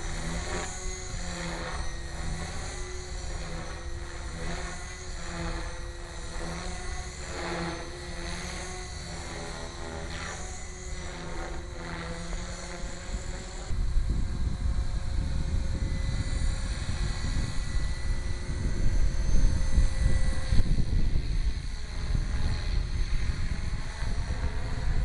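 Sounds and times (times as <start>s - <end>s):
rc helicopter whine: 0.0s - 25.0s.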